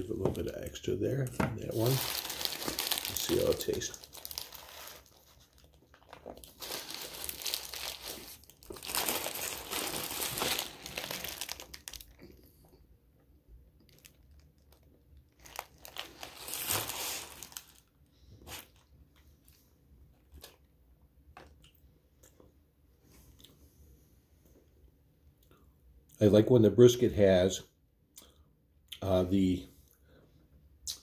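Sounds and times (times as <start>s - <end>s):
paper wrapper crinkling: 0.4s - 12.4s, 13.9s - 17.9s.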